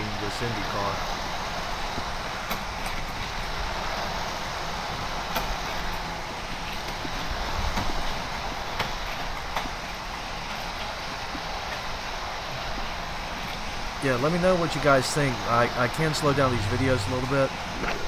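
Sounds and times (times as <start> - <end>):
track boosters whirring: 15.6 - 17.8.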